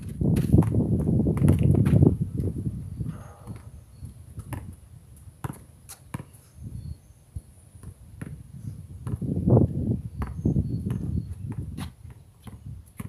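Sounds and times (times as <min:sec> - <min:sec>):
basketball bouncing on court: 0:05.4 - 0:06.3, 0:10.2 - 0:13.0
bird chirps: 0:06.2 - 0:07.3, 0:10.1 - 0:11.5.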